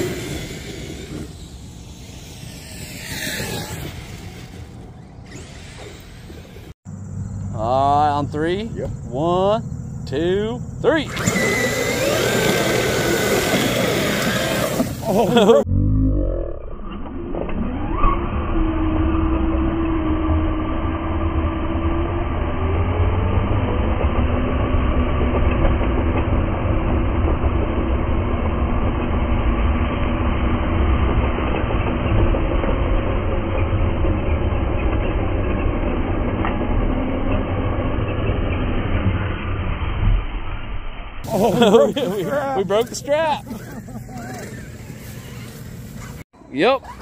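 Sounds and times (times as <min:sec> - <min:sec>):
electric motors whining: 0:00.0 - 0:07.5, 0:11.0 - 0:15.6
low rumble: 0:15.1 - 0:42.4.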